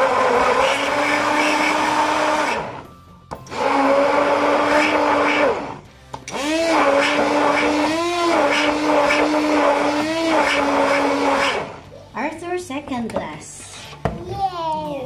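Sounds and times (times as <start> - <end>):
stick blender motor humming: 0.0 - 2.8, 3.5 - 11.8.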